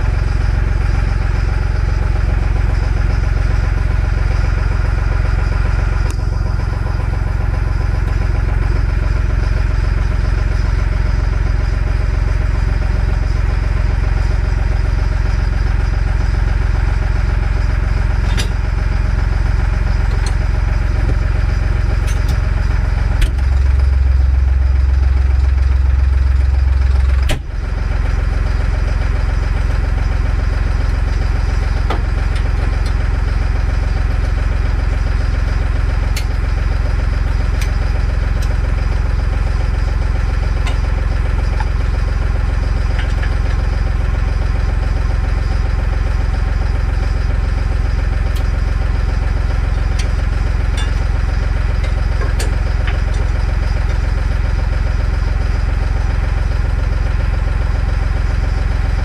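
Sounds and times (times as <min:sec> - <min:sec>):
deep low hum: 0:00.0 - 0:59.0
engine running: 0:00.0 - 0:59.0
clunk: 0:18.3 - 0:18.7, 0:23.2 - 0:23.6, 0:27.1 - 0:27.6, 0:31.9 - 0:33.0, 0:50.7 - 0:51.1, 0:51.7 - 0:54.0.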